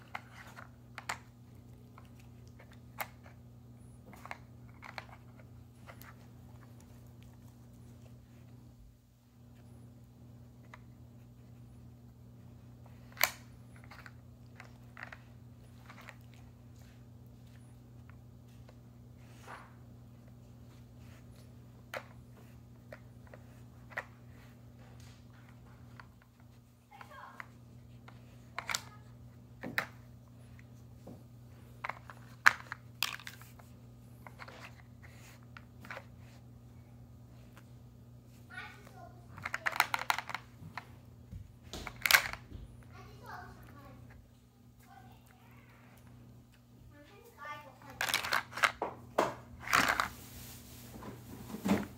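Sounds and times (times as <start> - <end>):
steady low hum: 0.0 - 51.9
plastic lids clacking and scraping: 39.4 - 40.8.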